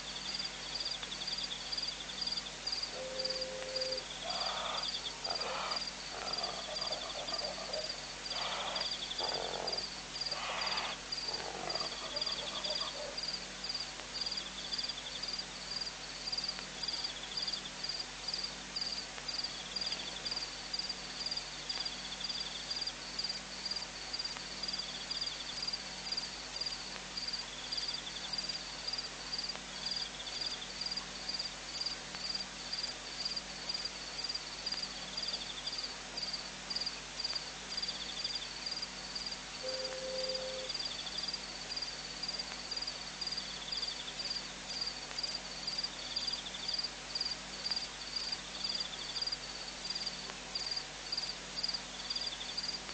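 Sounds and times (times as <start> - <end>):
lower loud animal calls: 3.0 - 13.2
faint intermittent trill: 39.6 - 41.0.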